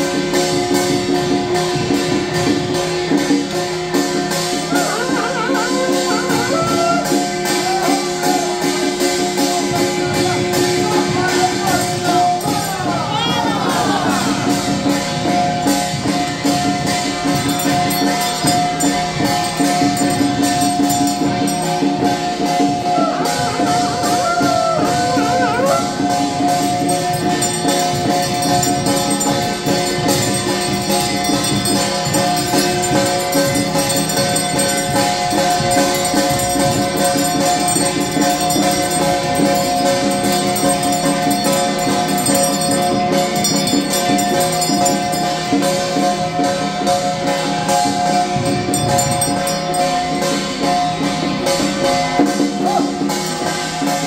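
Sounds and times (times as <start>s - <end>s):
drum and cymbal percussion: 0.0s - 54.0s
wavering pitch-bending melody: 16.0s - 22.9s, 24.8s - 50.6s
held tone: 17.2s - 22.1s, 26.2s - 45.6s.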